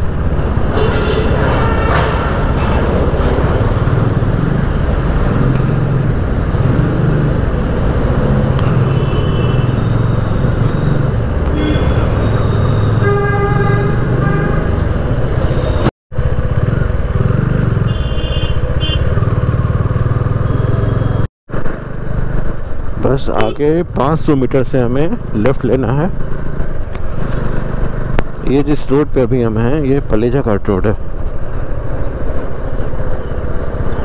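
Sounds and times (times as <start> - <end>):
vehicle horns honking: 0.7 - 2.5, 8.7 - 10.1, 11.5 - 14.9, 17.8 - 19.2
motorcycle engine running: 16.2 - 22.7.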